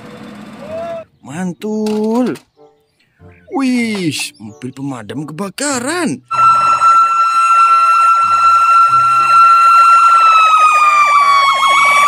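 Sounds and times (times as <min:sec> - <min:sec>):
fire truck siren yelp: 0:06.3 - 0:12.0.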